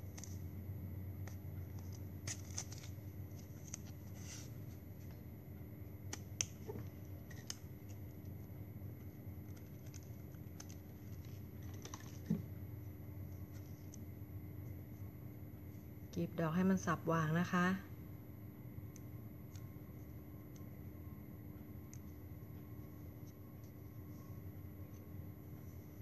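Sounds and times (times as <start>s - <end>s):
low steady hum: 0.0s - 26.0s
plastic rustling: 9.4s - 12.5s.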